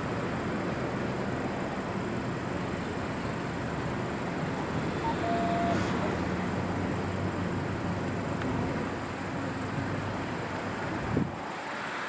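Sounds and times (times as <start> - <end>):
street traffic rumble: 0.0 - 12.0
short single-pitched beep: 5.0 - 5.8.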